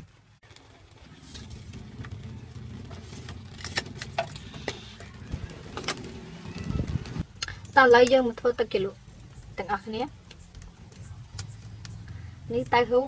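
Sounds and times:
low rumble: 0:00.8 - 0:13.0
metal tongs clinking on charcoal: 0:07.4 - 0:11.5.

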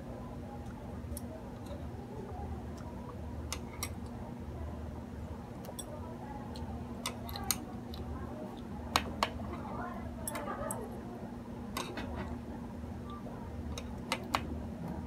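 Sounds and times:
steady low hum: 0:00.0 - 0:15.0
chopsticks tapping a plate: 0:11.7 - 0:12.3.

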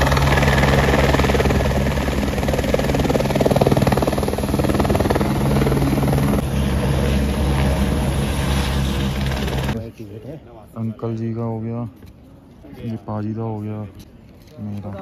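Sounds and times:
helicopter engine and rotor drone: 0:00.0 - 0:09.8.

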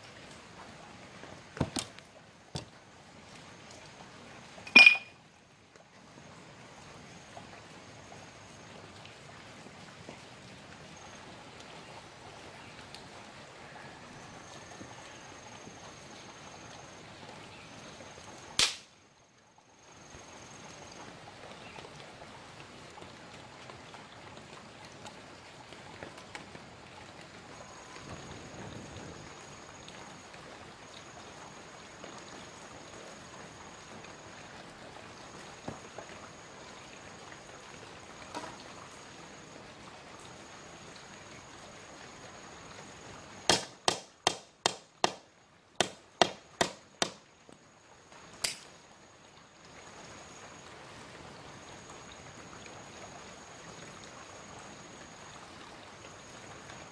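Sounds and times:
knife chopping into wood: 0:43.5 - 0:45.2, 0:45.8 - 0:47.2.

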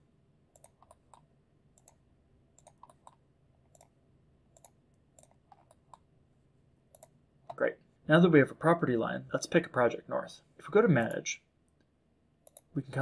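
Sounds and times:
low room hum: 0:00.0 - 0:13.0
computer mouse clicking: 0:00.5 - 0:02.0, 0:02.6 - 0:06.1, 0:06.9 - 0:07.6, 0:11.8 - 0:12.7.

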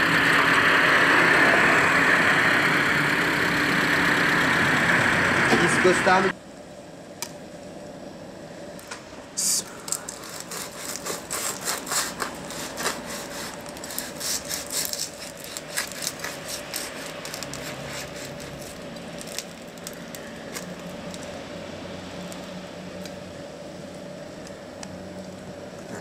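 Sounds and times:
steady low hum: 0:00.0 - 0:26.0
pastry being pulled open: 0:09.8 - 0:21.0
knife sawing through crisp crust: 0:10.0 - 0:19.4.

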